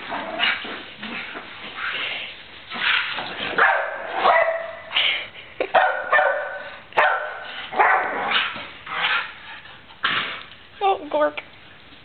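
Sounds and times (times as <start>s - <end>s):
dogs growling: 0.0s - 3.6s, 7.5s - 10.6s
dogs barking: 3.6s - 4.9s, 5.7s - 9.4s.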